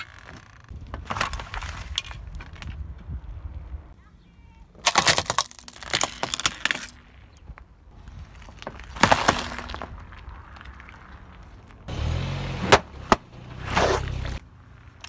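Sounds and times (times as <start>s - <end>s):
eggs crushed in carton: 4.8s - 6.9s
plastic toy car cracking: 4.8s - 7.0s.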